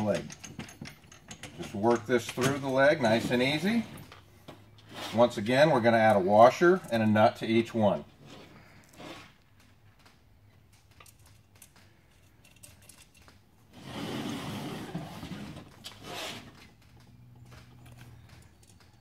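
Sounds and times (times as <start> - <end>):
small metal clicks of washers: 9.5 - 13.5
stool scraping on table: 13.7 - 16.7.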